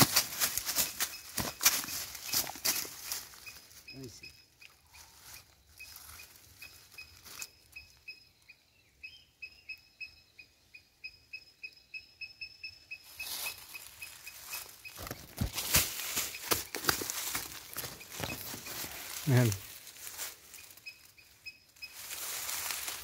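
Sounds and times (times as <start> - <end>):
rustling in dry grass: 0.0 - 8.1, 13.0 - 23.0.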